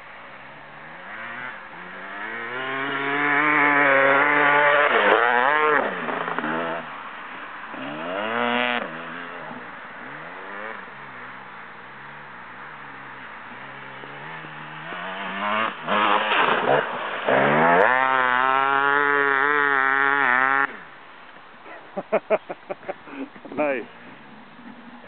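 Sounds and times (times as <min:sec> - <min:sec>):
dirt bike engine revving: 0:00.6 - 0:07.0, 0:07.7 - 0:20.9.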